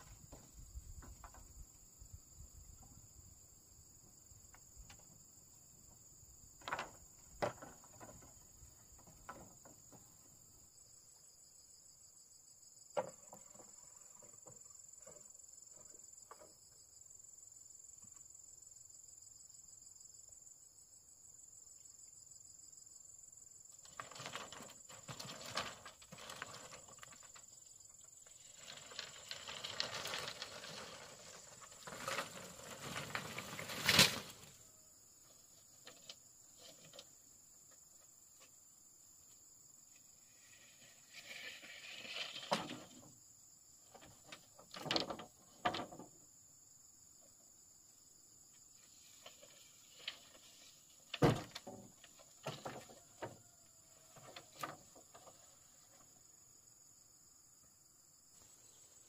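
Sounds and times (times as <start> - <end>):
high-pitched insect trill: 10.4 - 45.0
rustling of handwork: 23.8 - 34.6.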